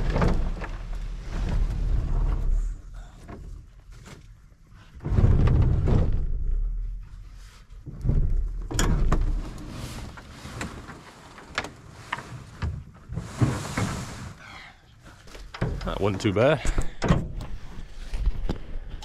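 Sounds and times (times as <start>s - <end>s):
canoe scraping on ground: 9.3s - 14.4s.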